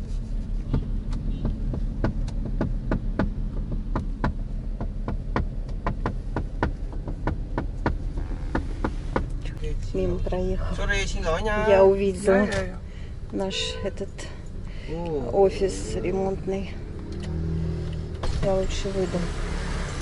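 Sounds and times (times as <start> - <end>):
car cabin hum: 0.0 - 17.4
hands tapping on window glass: 0.7 - 9.3.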